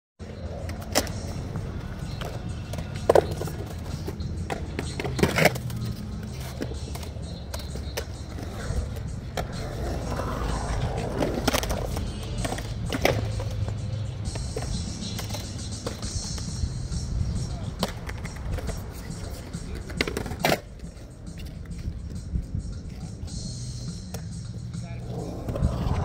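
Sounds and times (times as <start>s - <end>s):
skateboard wheels rolling on concrete: 0.2s - 26.0s
skateboard clacking on concrete: 0.3s - 24.3s.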